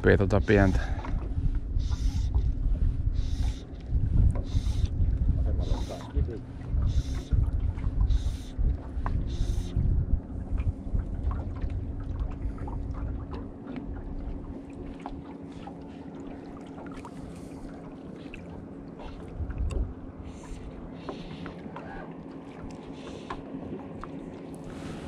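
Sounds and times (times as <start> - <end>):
steady low hum: 0.0 - 25.0
waves lapping against boat hull: 0.0 - 25.0
wind rumble on microphone: 0.0 - 25.0.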